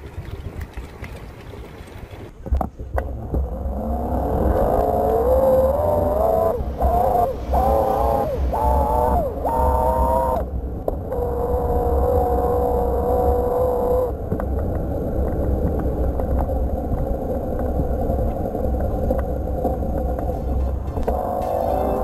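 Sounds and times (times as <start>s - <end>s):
road noise: 0.0s - 22.0s
wind rumble on microphone: 0.0s - 22.0s
e-bike motor whining: 3.4s - 14.2s, 20.7s - 22.0s.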